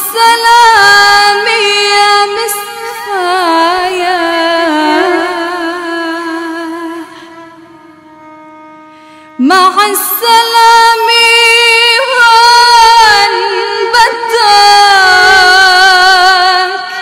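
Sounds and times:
person singing ornamented melody: 0.0s - 7.2s.

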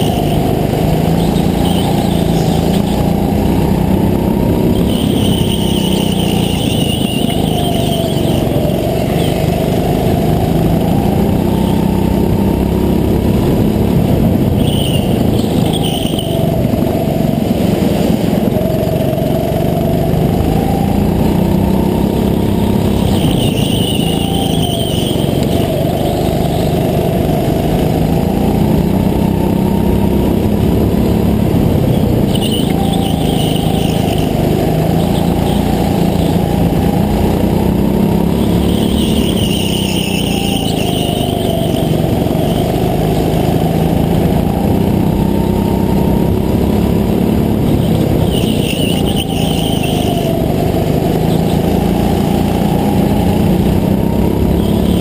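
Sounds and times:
go-kart engine running hard: 0.0s - 55.0s
high squeal: 4.8s - 9.5s, 22.8s - 26.0s, 32.2s - 36.1s, 38.4s - 42.4s, 48.0s - 50.6s.

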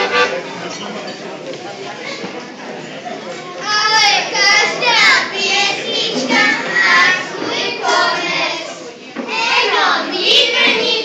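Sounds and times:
children singing in a hall: 3.6s - 11.0s.

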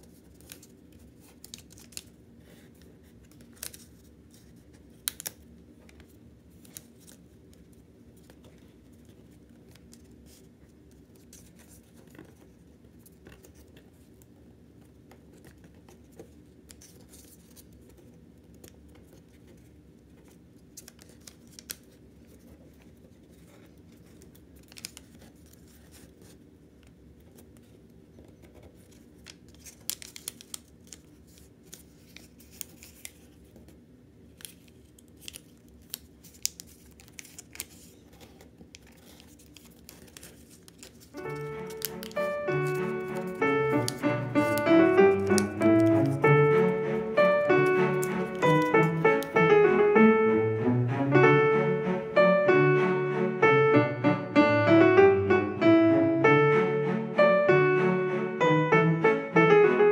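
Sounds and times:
sharp paper crackles: 0.0s - 26.4s, 27.2s - 49.4s
banknote paper rustling: 0.0s - 26.5s, 27.2s - 50.2s.

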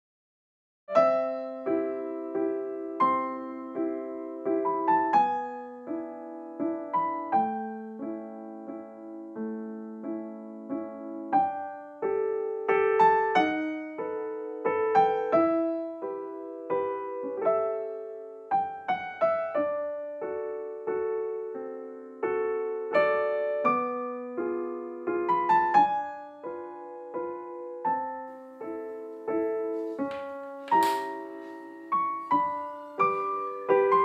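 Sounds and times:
gentle solo piano music: 0.9s - 34.0s.

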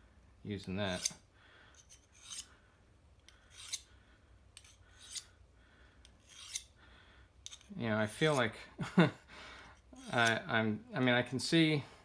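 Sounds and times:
knife sharpener scraping blade: 0.9s - 1.2s, 1.8s - 2.5s, 3.3s - 3.9s, 4.6s - 5.3s, 6.0s - 6.7s, 7.4s - 8.4s, 10.0s - 10.5s.

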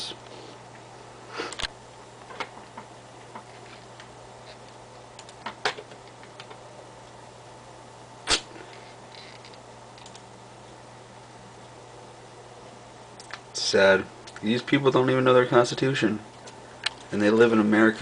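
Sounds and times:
low electrical hum: 0.0s - 18.0s
computer mouse clicking: 5.2s - 6.6s, 9.4s - 10.3s.

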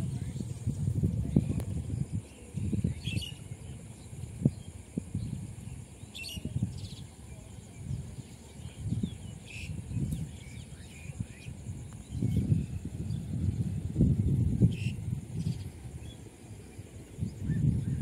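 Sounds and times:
steady high hiss: 0.0s - 18.0s
wind rumbling on microphone: 0.0s - 18.0s
faint bird chirps: 0.2s - 13.5s.

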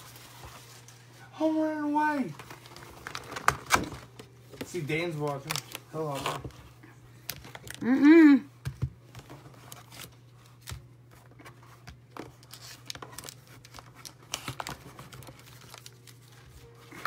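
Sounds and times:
wrapper crinkling and tearing: 2.1s - 6.6s, 12.1s - 17.0s
cards rustling and clicking: 2.2s - 7.9s, 8.6s - 17.0s.

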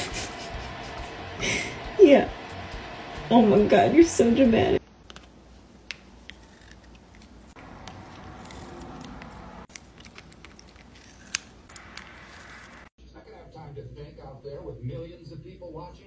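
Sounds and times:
cat gnawing on pencil: 6.2s - 12.8s.

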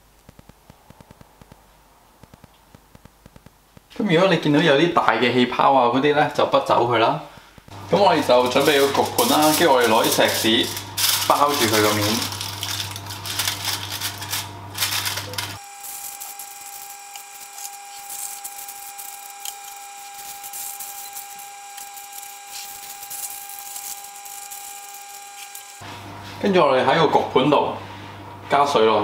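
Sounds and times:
aluminium foil crinkling: 8.0s - 25.8s.

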